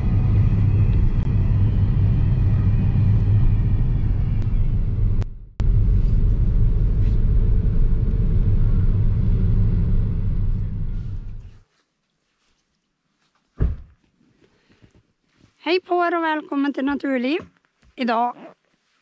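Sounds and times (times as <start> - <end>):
car engine and road noise: 0.0 - 11.6.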